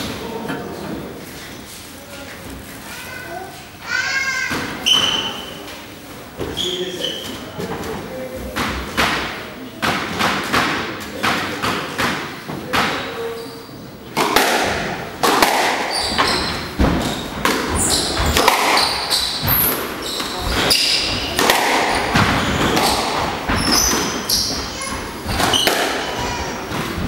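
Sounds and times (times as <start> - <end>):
shoe squeaks on wooden floor: 4.8 - 5.7, 6.4 - 7.6, 13.2 - 13.9, 15.8 - 27.0
squash ball smacks: 14.2 - 15.9, 21.3 - 24.1.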